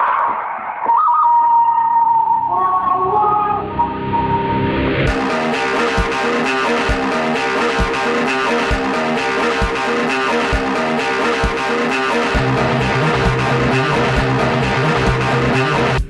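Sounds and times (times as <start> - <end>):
guitar-led theme music: 3.3 - 16.0
bass line: 3.5 - 16.0.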